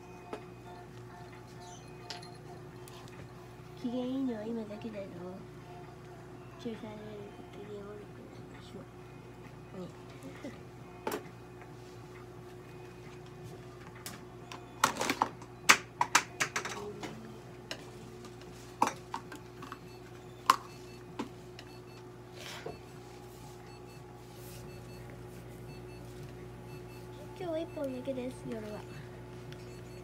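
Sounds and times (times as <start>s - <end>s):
steady electrical hum: 0.0s - 30.0s
short electronic beeps: 26.7s - 30.0s.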